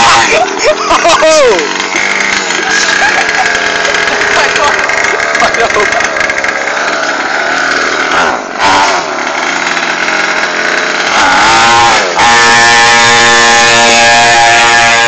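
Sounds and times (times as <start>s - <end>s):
dirt bike engine revving: 0.0s - 15.0s.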